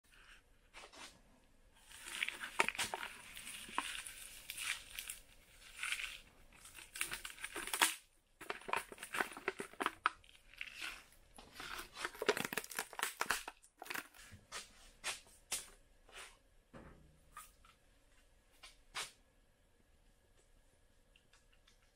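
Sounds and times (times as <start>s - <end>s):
packaging torn and crinkled: 1.8s - 14.2s.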